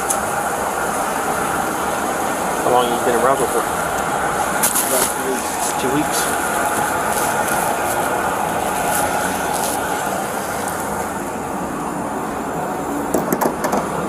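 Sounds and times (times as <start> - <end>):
steady outdoor rumble: 0.0 - 14.0
clothing rustling: 4.4 - 11.4.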